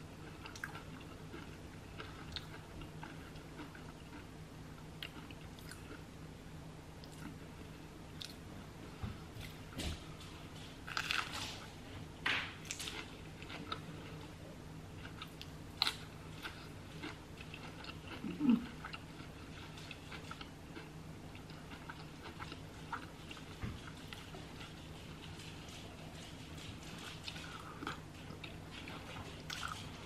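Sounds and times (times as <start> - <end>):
person chewing food crunchily: 0.0 - 6.1, 10.5 - 30.0.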